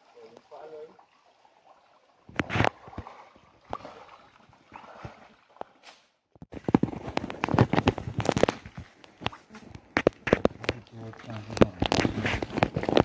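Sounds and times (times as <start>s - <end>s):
cast net clicking and rattling: 6.4s - 13.0s.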